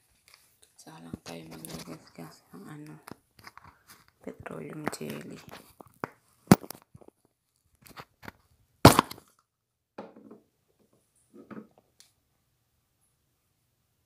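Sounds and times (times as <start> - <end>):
rustling: 0.0 - 9.3.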